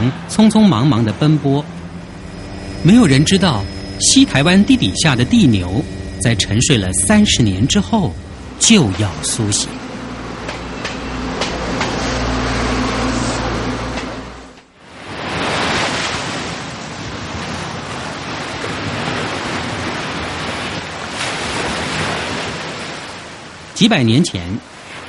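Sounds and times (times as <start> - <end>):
steady rushing noise: 0.0 - 15.6
low rumble with steady hum: 0.4 - 14.8.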